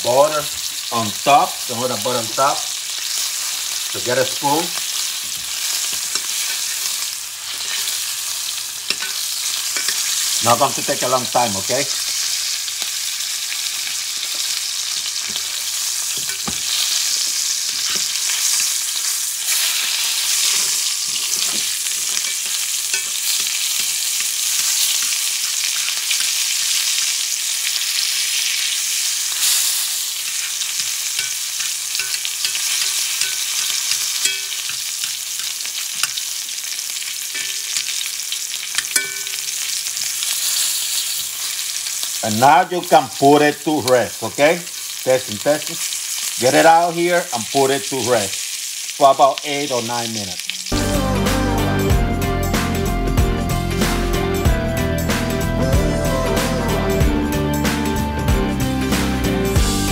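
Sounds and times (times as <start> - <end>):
steak sizzling in skillet: 0.0 - 59.9
spoon clicking against pan: 31.2 - 36.2, 38.7 - 39.5.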